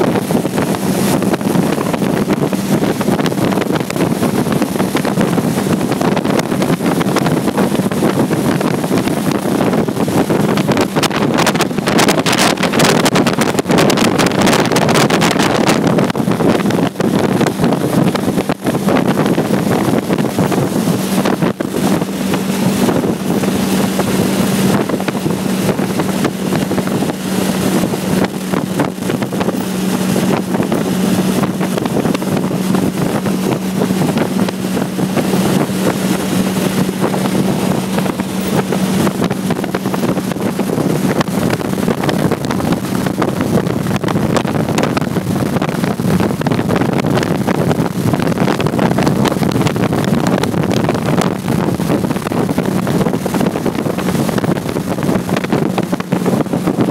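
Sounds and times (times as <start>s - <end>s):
car engine droning: 0.0s - 48.6s
wind buffeting microphone: 0.0s - 56.9s.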